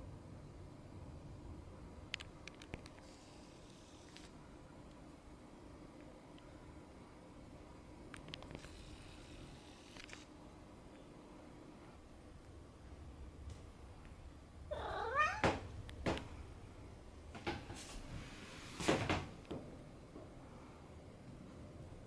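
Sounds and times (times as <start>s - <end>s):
cat crying: 14.7s - 15.5s.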